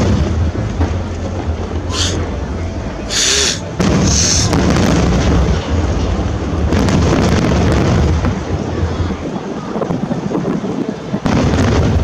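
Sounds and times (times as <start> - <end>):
sharp bang: 0.0 - 5.7
fireworks booming: 0.0 - 12.0
fireworks crackling: 0.0 - 12.0.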